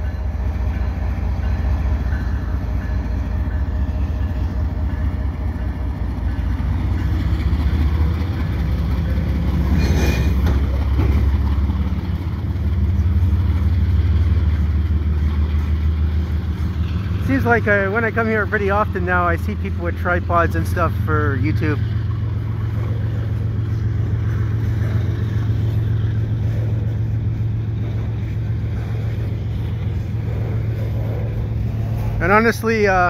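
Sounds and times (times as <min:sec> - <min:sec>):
diesel locomotives rumbling: 0:00.0 - 0:33.0
freight cars rolling on rails: 0:00.0 - 0:33.0.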